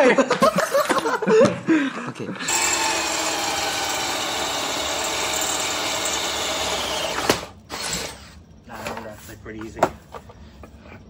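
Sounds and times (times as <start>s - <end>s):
cordless drill boring steel: 2.5s - 8.2s.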